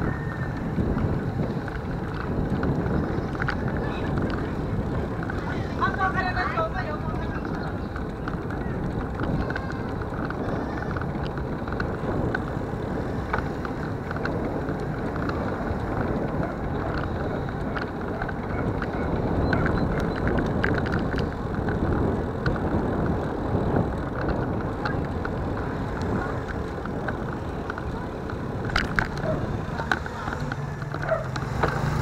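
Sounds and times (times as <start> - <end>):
tyre rumble on road: 0.0 - 32.0
wind rushing over microphone: 0.0 - 32.0
light clicks and rattles: 23.9 - 32.0.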